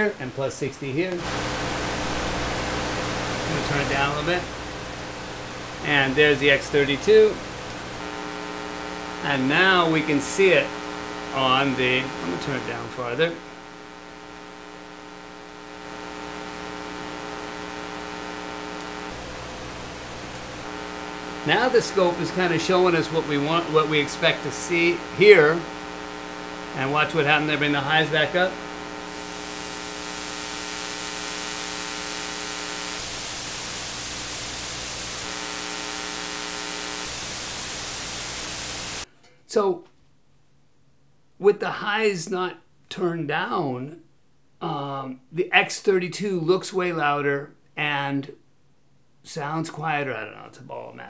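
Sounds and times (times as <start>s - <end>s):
buzzy electrical hum: 0.0s - 39.1s
preamp hiss: 0.0s - 39.6s
deeper hum: 1.2s - 39.0s.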